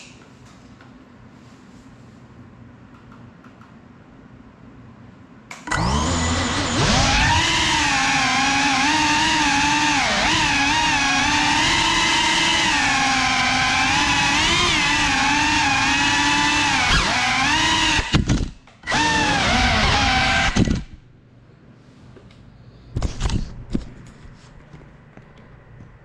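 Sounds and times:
drone motors whining: 5.7s - 21.0s.

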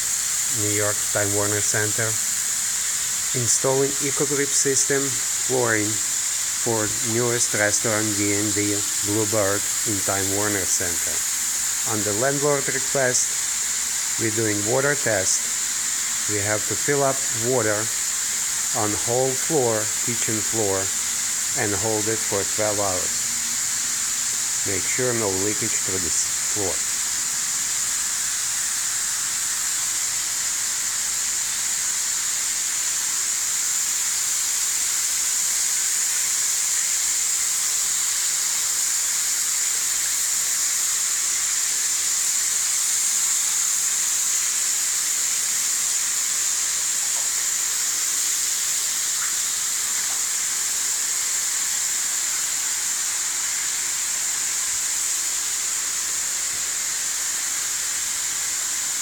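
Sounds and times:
water jetting onto flooded floor: 0.0s - 59.0s.

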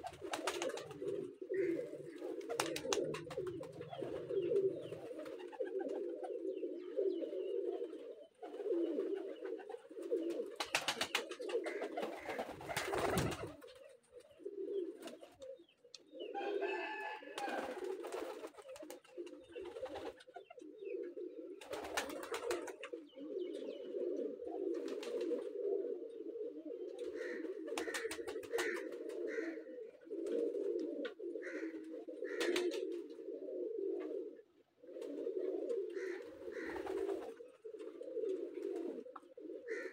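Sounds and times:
pigeons cooing: 0.0s - 39.9s.

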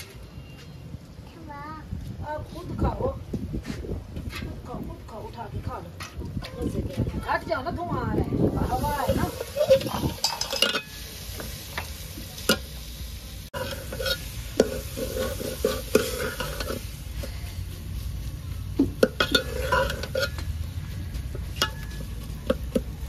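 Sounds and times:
light sizzling: 7.2s - 23.0s
spoon scraping pot: 8.9s - 11.0s, 13.6s - 17.3s, 19.0s - 20.4s.

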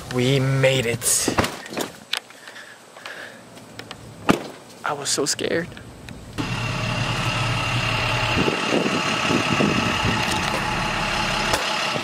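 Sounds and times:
truck engine idling: 6.4s - 12.0s.

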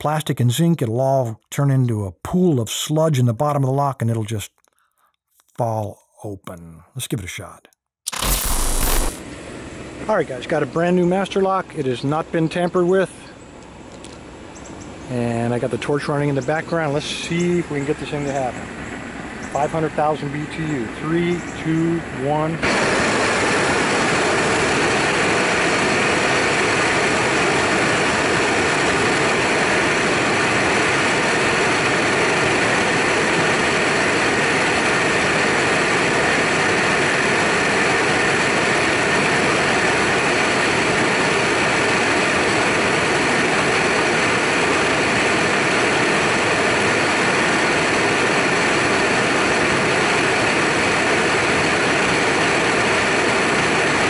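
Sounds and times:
torch flame roaring: 22.6s - 54.0s.

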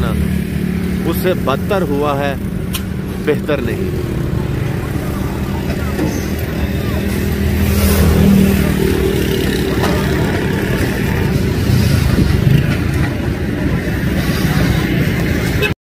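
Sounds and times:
vehicle engines humming: 0.0s - 15.8s.

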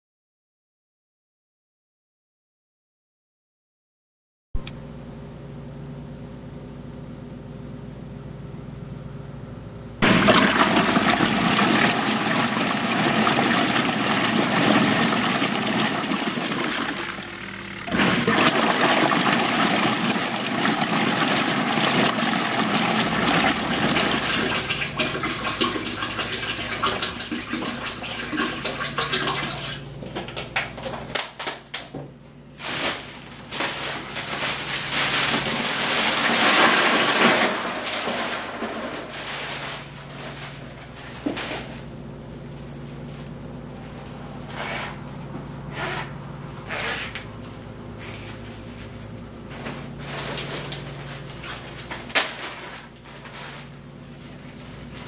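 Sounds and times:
water pouring into plastic tub: 10.0s - 30.0s, 33.6s - 40.5s.

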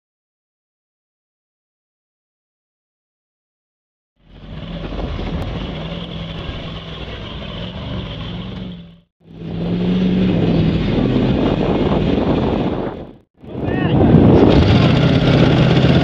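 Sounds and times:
tires churning through mud: 4.2s - 16.0s
truck engines revving: 4.2s - 16.0s.

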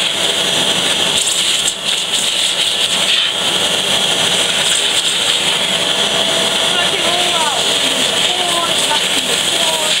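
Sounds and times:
vacuum cleaner running: 0.0s - 10.0s.

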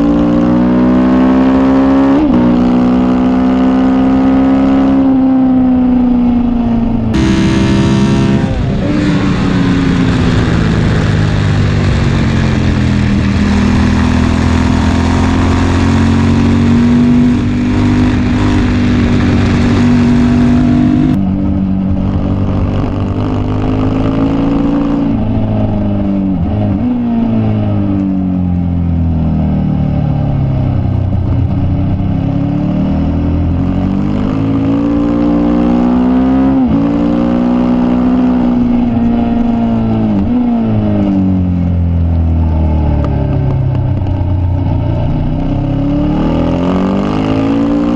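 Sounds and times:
motorcycle engine shifting gears: 0.0s - 47.9s
wind rush: 6.2s - 27.5s.

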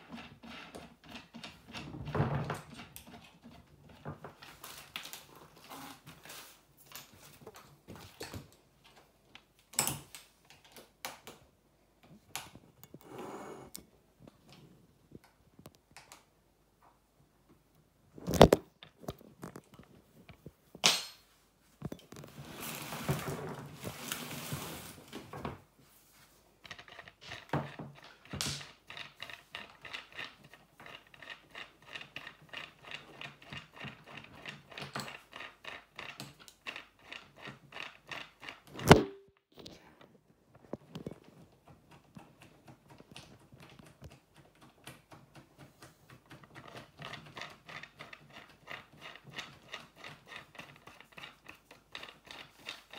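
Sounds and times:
rustling scrape: 21.4s - 27.5s.

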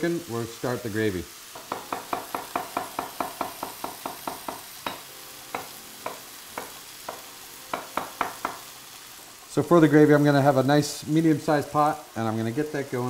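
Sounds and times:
mushrooms sizzling in oil: 0.0s - 13.0s
knife chopping on wooden board: 1.6s - 8.6s.

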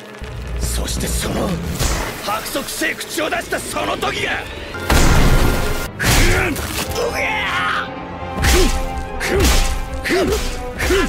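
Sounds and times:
dramatic background music: 0.0s - 11.0s
hit sound effects: 4.8s - 5.9s.

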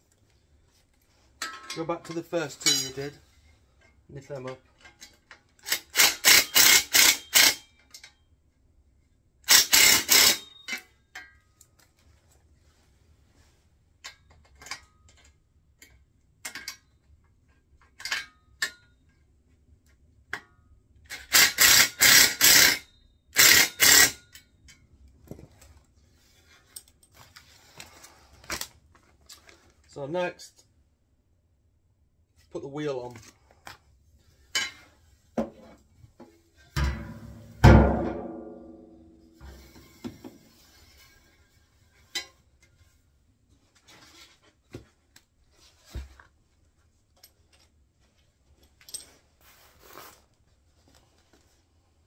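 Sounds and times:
ratchet spanner clicking: 5.6s - 7.6s, 9.5s - 10.6s, 21.3s - 22.8s, 23.4s - 24.2s.

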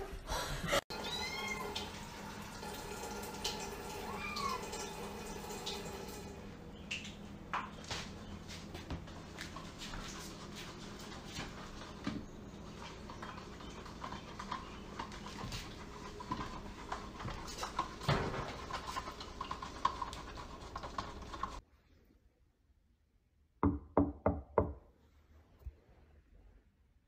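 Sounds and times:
household room noise: 0.0s - 22.0s.

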